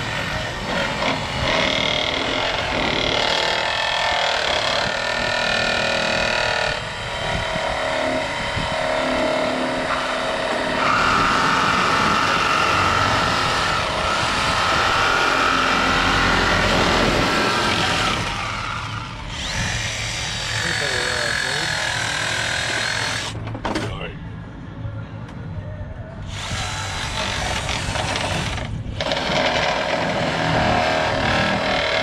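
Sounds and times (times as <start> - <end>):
angle grinder cutting steel: 16.6 - 23.4.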